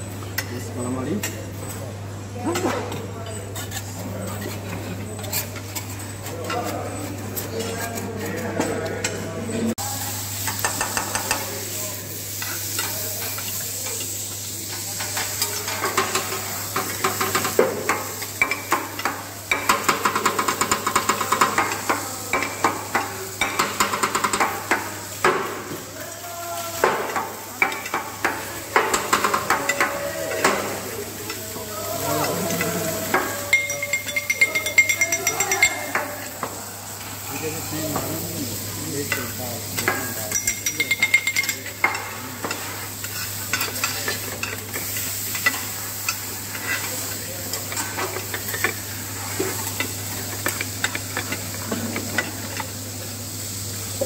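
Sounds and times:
metal spatula scraping and clacking: 3.5s - 9.2s
meat sizzling on a griddle: 9.8s - 54.0s.

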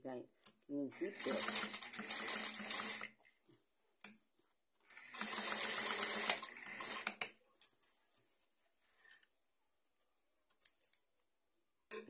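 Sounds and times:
electric sewing machine stitching: 0.9s - 3.2s, 4.9s - 7.3s.

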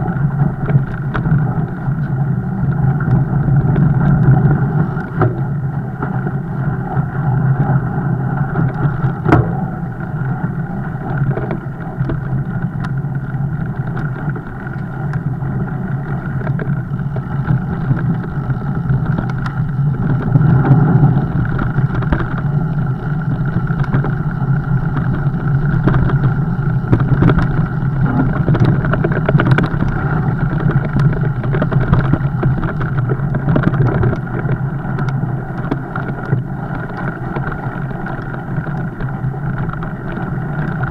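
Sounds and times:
bike clicks and rattles: 0.0s - 40.9s
bike tyres and drivetrain drone: 0.0s - 40.9s.

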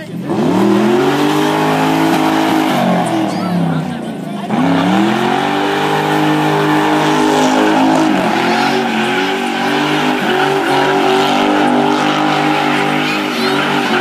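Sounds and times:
car engine at high revs: 0.0s - 14.0s
wheels spinning in burnout: 0.0s - 14.0s.

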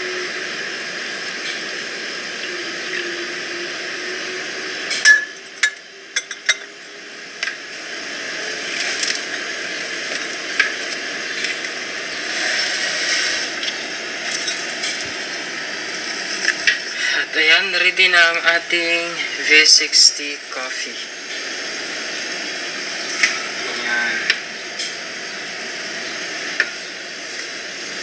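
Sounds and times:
steady hiss: 7.6s - 28.0s.

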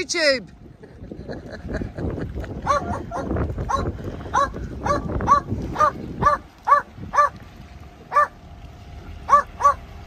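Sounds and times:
dog barking: 2.6s - 7.4s, 8.1s - 8.4s, 9.3s - 9.8s.

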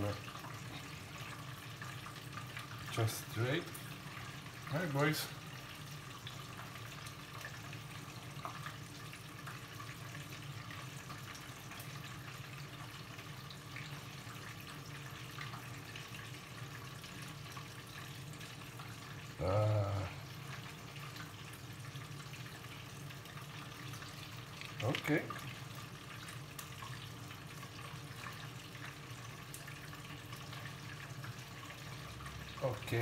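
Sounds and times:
short vocal sound: 19.4s - 20.3s.

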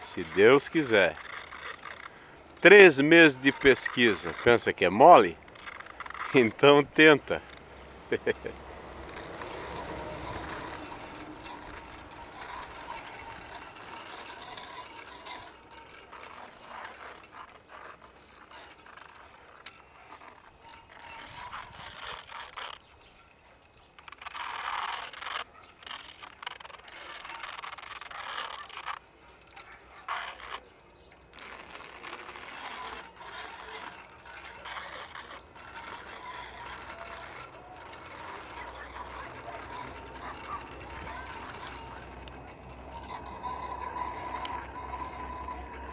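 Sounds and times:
bicycle rattling on steel rail: 0.0s - 45.9s.

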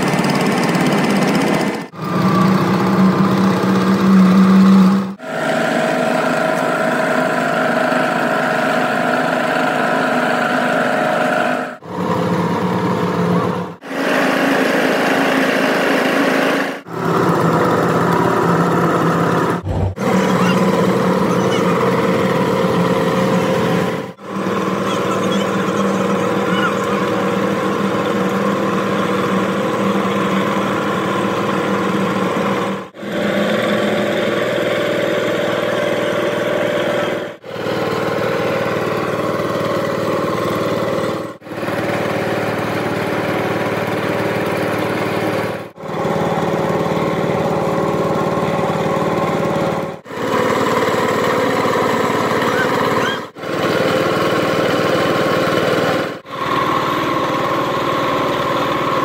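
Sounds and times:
machine humming: 19.4s - 30.0s.

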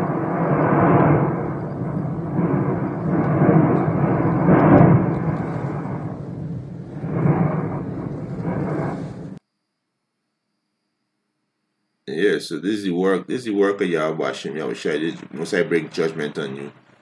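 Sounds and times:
volcano eruption rumbling: 0.0s - 9.4s, 13.4s - 17.0s.

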